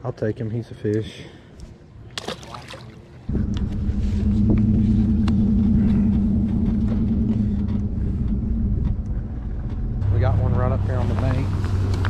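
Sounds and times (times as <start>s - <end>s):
engine running with low hum: 3.3s - 12.0s.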